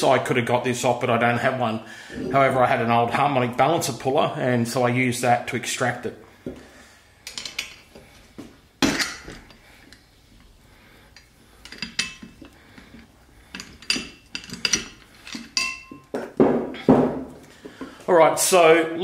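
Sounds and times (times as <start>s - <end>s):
metal bar clinking on metal: 11.6s - 12.6s, 13.5s - 16.1s.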